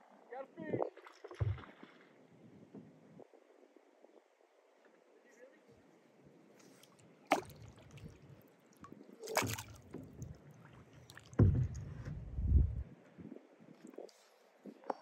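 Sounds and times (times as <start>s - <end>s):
kayak knocking on water: 9.3s - 10.4s, 11.2s - 12.8s.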